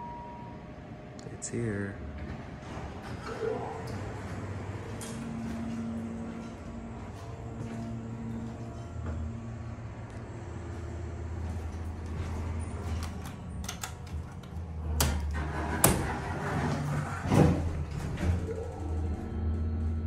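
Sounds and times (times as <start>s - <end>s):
low hum: 0.0s - 20.0s
elevator doors sliding shut: 2.1s - 20.0s
panel door clicks: 12.9s - 16.3s.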